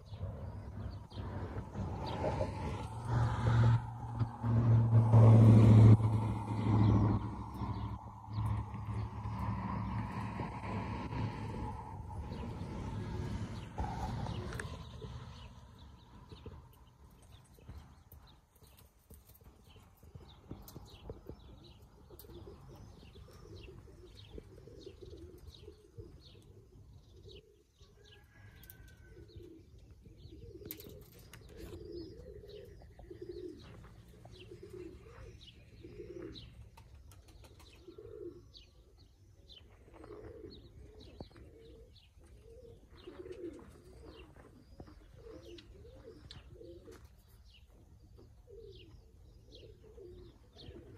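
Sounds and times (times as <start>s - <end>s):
steady low rumble: 0.0s - 17.2s
pigeons cooing: 0.0s - 50.9s
small birds chirping: 6.3s - 50.9s.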